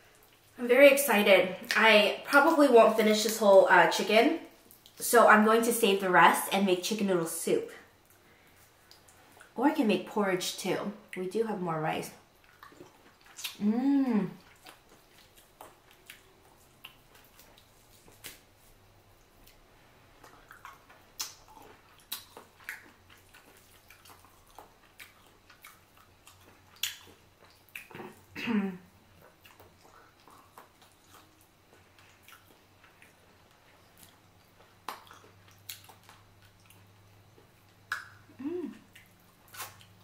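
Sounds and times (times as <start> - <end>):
wet chewing and lip-smacking: 12.3 - 13.6, 14.4 - 18.4, 20.2 - 28.3, 29.2 - 40.0
person humming: 13.6 - 14.4, 38.3 - 38.9.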